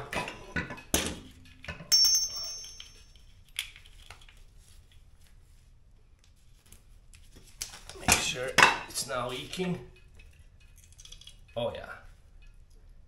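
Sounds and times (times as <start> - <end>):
metal tool clinking: 0.6 - 3.4.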